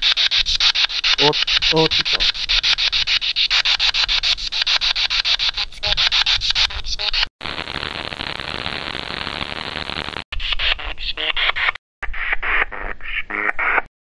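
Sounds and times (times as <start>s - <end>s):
pulsing radio static: 0.0s - 4.2s
voice-like tone: 1.2s - 2.3s, 10.4s - 11.7s.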